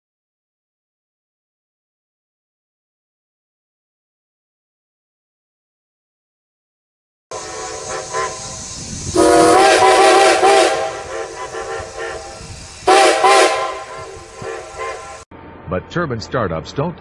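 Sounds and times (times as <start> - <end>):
train horn blasts: 7.3 - 15.2
train rumble and hiss: 7.3 - 17.0.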